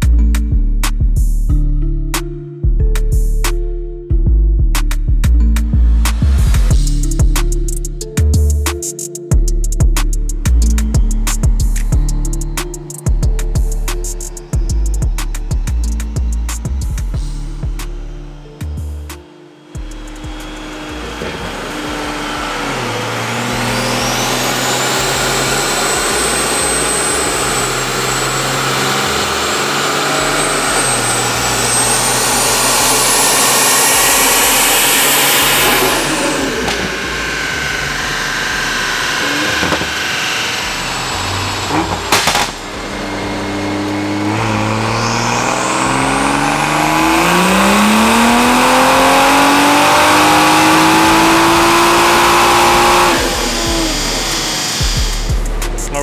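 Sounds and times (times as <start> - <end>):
turbo whine: 9.4 - 56.0
car engine revving: 10.4 - 56.0
sharp bang: 41.8 - 42.8.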